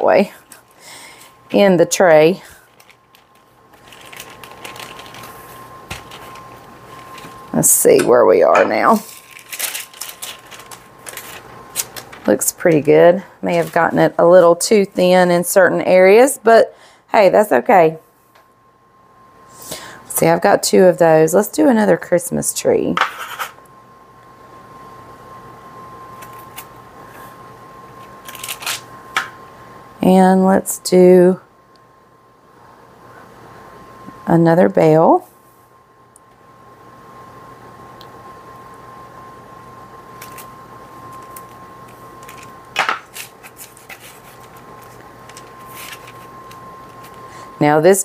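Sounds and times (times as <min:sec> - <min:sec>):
parchment paper crinkling: 0:02.5 - 0:07.5, 0:08.9 - 0:12.6, 0:13.5 - 0:14.0, 0:28.1 - 0:28.8, 0:40.2 - 0:47.2.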